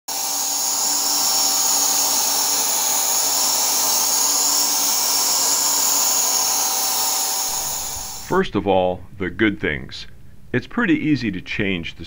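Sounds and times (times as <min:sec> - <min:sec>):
electric paint sprayer whine: 0:00.1 - 0:08.3.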